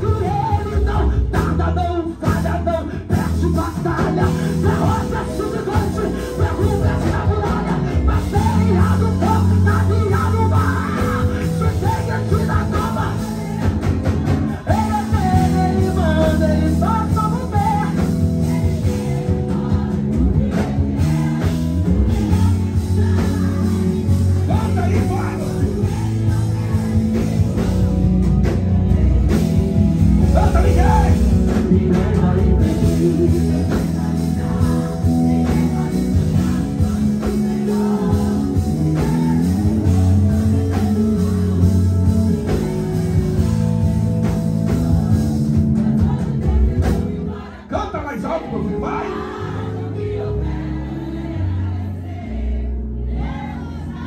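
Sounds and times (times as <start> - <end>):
person singing: 0.0 - 43.8
band playing gospel music: 0.0 - 54.0.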